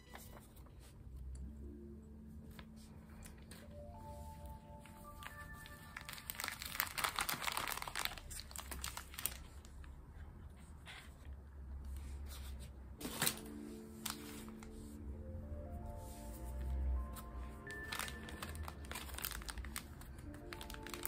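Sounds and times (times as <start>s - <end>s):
soft background music: 0.0s - 10.8s, 11.8s - 21.0s
cardboard and plastic crinkling: 5.1s - 9.9s, 12.3s - 14.9s, 17.6s - 21.0s.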